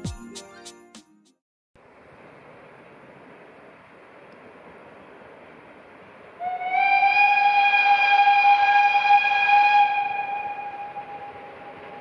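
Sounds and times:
steam locomotive whistle: 6.4s - 12.0s.

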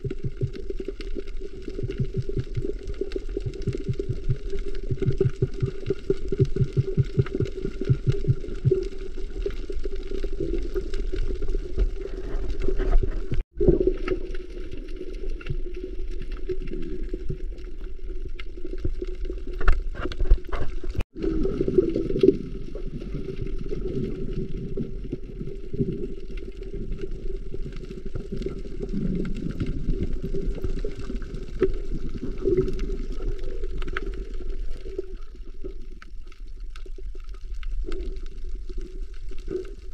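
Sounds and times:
low underwater hum: 0.0s - 39.9s.

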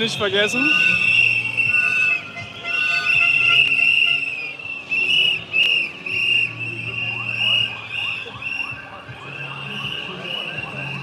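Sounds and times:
warbling whistle blasts: 0.5s - 11.0s.

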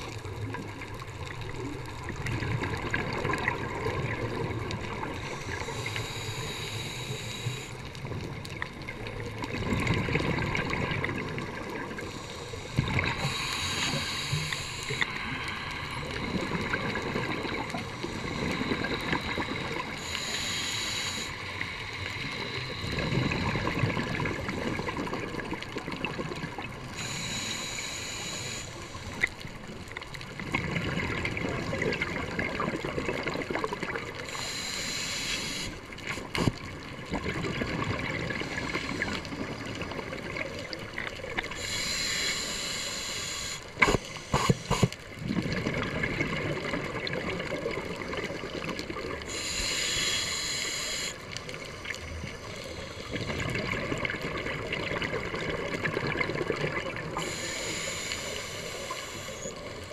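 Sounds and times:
regulator inhalation hiss: 5.2s - 8.0s, 12.0s - 23.8s, 26.8s - 29.2s, 34.2s - 36.5s, 41.4s - 45.0s, 49.2s - 53.5s, 57.1s - 59.9s
underwater exhalation bubbling: 8.9s - 15.4s, 22.3s - 26.8s, 30.4s - 34.2s, 36.1s - 41.9s, 43.7s - 51.0s, 52.3s - 57.7s.

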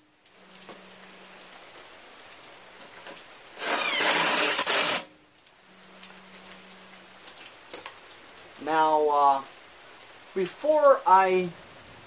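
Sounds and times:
cordless power driver whining: 3.6s - 5.1s.

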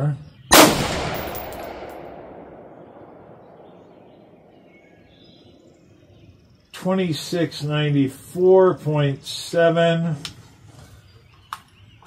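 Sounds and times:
rifle shot with echo: 0.5s - 5.3s.

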